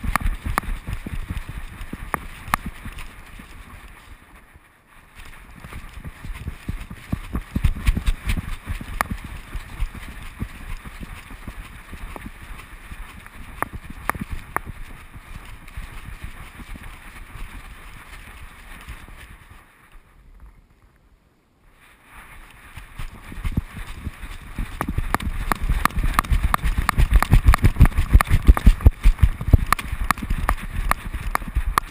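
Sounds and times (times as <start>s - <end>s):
dog footfalls with claw clicks: 24.6s - 31.9s.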